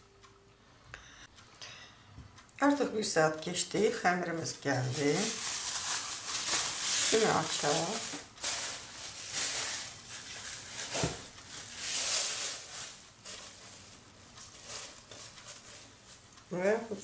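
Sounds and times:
plastic film crinkling: 3.6 - 16.6.

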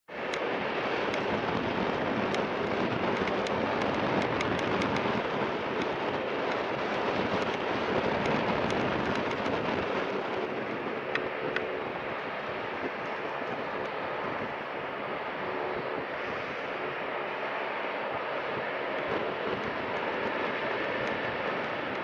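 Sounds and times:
jet engines rushing: 0.1 - 22.0.

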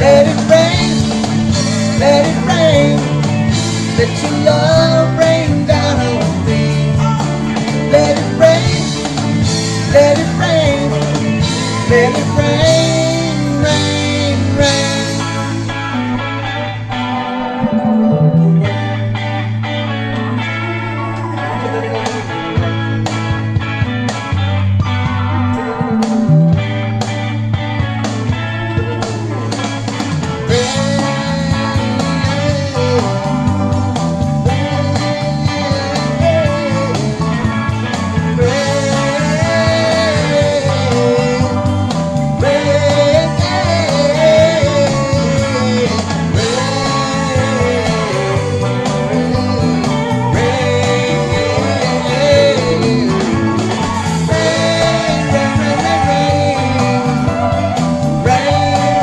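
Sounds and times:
bending guitar melody line: 0.0 - 59.0
blues-rock music with guitar: 0.0 - 59.0.

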